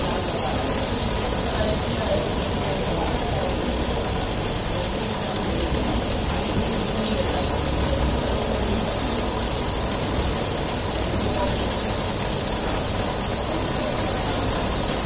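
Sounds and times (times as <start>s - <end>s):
industrial sewing machine running: 0.0s - 15.0s.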